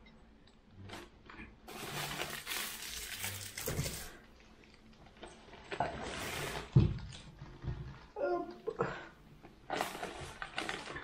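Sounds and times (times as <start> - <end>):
plastic packaging rustling: 1.7 - 7.3, 9.7 - 11.0.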